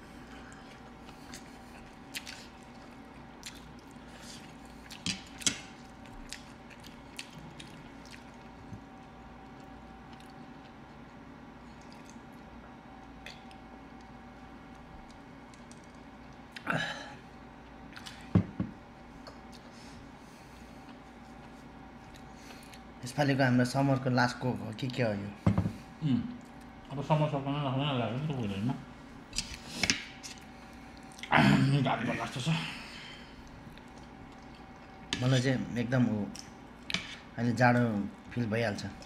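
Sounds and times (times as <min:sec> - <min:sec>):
faint steady hum: 0:00.0 - 0:39.0
chewing and biting food: 0:00.5 - 0:14.1
knock: 0:25.5 - 0:25.8.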